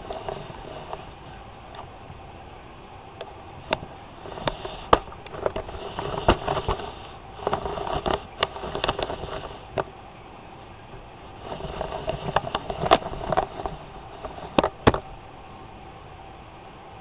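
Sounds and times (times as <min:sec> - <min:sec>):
rustling and scraping: 0:00.0 - 0:01.9, 0:03.6 - 0:10.0, 0:11.0 - 0:15.6
sharp clicks and bumps: 0:03.7 - 0:09.9, 0:10.9 - 0:15.3
cat rubbing against phone: 0:11.4 - 0:14.8.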